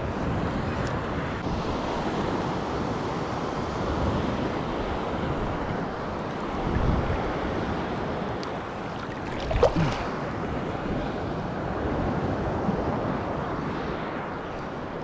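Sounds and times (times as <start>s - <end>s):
wind buffeting microphone: 0.0s - 15.0s
water sloshing around legs: 8.4s - 10.2s.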